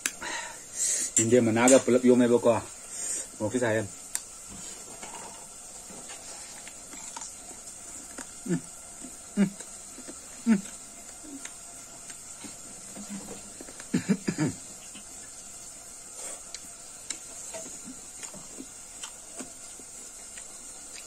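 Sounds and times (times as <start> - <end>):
faint hiss: 0.0 - 21.0
chewing and mouth sounds: 6.1 - 14.0, 16.2 - 21.0.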